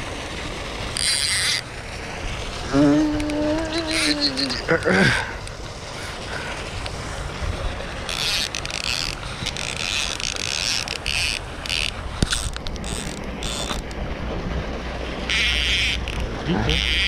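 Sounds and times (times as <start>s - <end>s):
fishing reel ratcheting whir: 0.9s - 1.8s, 2.7s - 4.6s, 8.0s - 14.0s, 15.2s - 17.0s.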